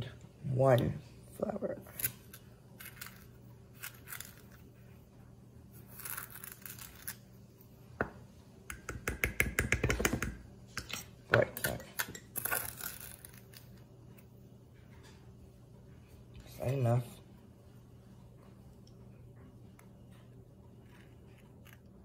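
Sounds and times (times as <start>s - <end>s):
spoon scraping sugar in bowl: 1.8s - 4.7s, 5.7s - 7.2s
spoon knocking against bowl: 8.7s - 12.3s.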